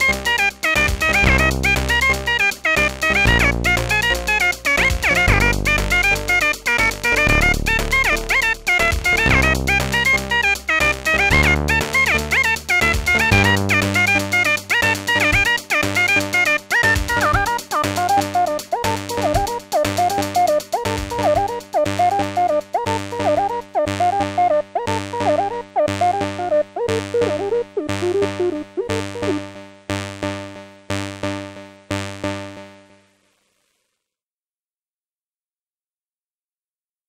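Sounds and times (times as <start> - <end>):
steady bass: 0.0 - 16.3
drum machine beat: 0.0 - 23.5, 26.9 - 29.5
synth pattern: 0.0 - 29.6.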